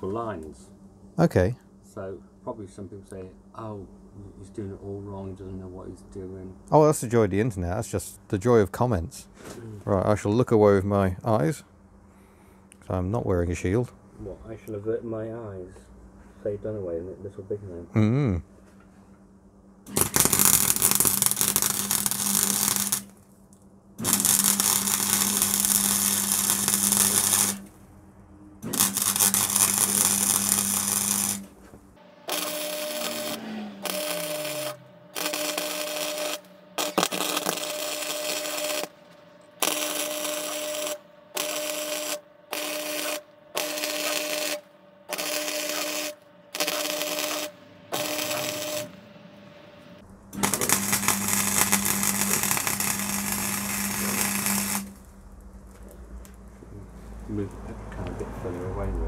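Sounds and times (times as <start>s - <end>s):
low welder hum: 0.0s - 59.0s
welding arc crackling: 19.9s - 27.8s, 28.6s - 31.6s, 32.3s - 49.0s, 50.0s - 57.7s.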